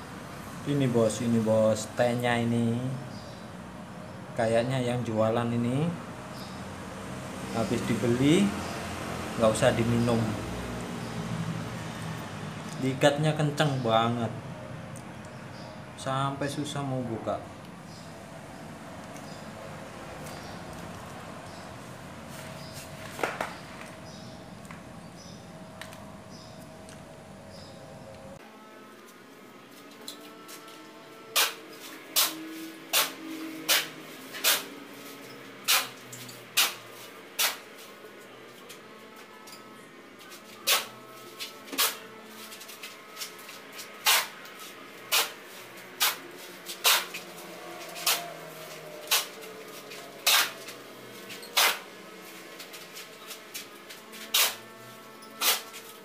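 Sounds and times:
shovel scraping concrete floor: 0:31.3 - 0:34.7, 0:35.7 - 0:36.8, 0:37.4 - 0:37.7, 0:40.6 - 0:44.4, 0:45.1 - 0:45.4, 0:46.0 - 0:47.2, 0:47.8 - 0:48.3, 0:50.2 - 0:51.9, 0:52.6 - 0:54.6, 0:55.3 - 0:56.0.

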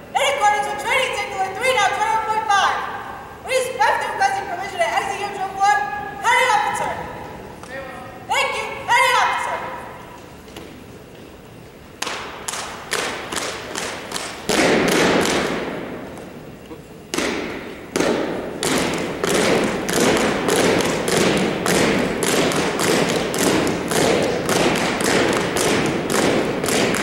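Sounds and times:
stomping and clapping on wooden floor: 0:12.0 - 0:15.7, 0:17.1 - 0:27.0.

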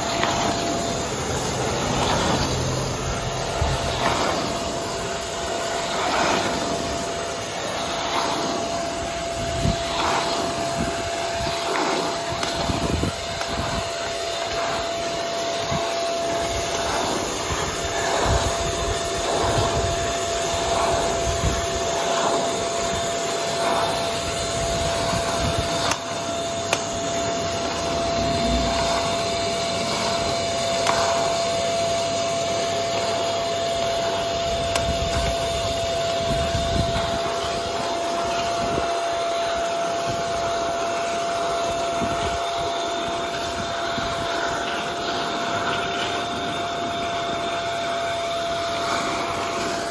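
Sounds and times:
wand sucking water from rug: 0:00.0 - 0:39.8
suction motor whining: 0:00.0 - 0:49.9.

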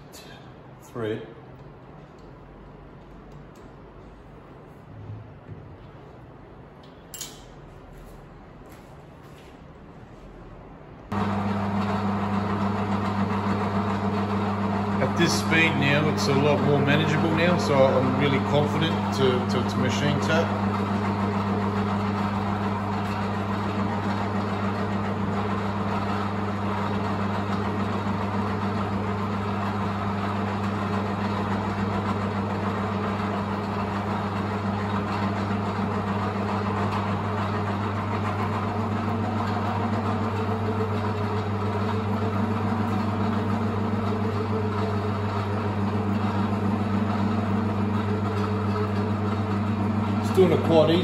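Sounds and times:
metal lathe motor humming: 0:11.1 - 0:51.0.

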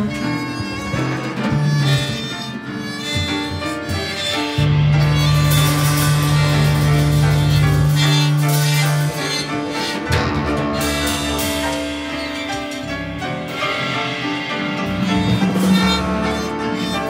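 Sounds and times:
drum kit: 0:00.0 - 0:17.0
electric guitar: 0:00.0 - 0:17.0
piano: 0:00.0 - 0:17.0
violin: 0:00.0 - 0:17.0
loud held low note: 0:04.6 - 0:17.0.

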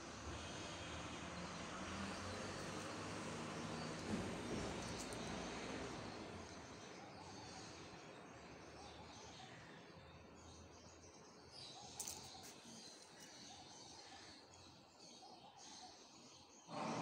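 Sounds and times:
keyrings clinking: 0:11.9 - 0:13.4.

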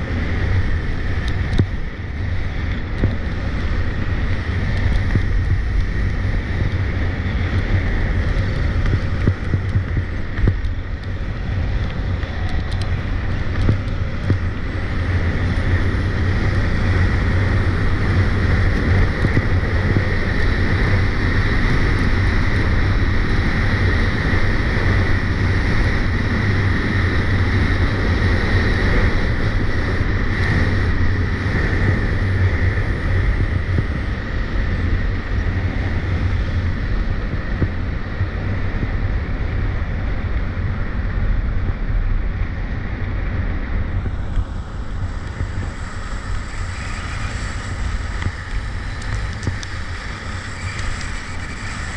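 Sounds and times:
wind rushing over microphone: 0:00.0 - 0:51.9
skis scraping on icy snow: 0:45.1 - 0:51.9.

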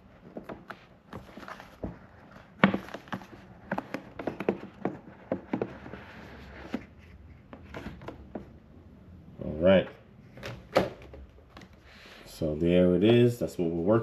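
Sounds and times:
cardboard box taps and knocks: 0:02.6 - 0:06.0.

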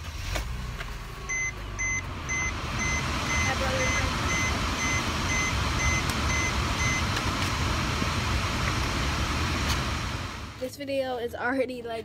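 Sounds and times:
high electronic beep: 0:01.3 - 0:07.1
vacuum cleaner running: 0:01.6 - 0:10.6.

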